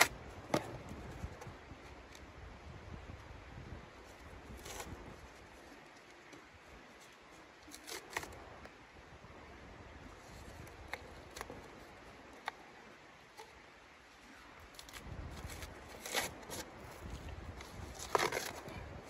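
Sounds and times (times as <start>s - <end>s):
cardboard rustling: 14.7s - 18.8s
cardboard ripping: 14.8s - 17.0s.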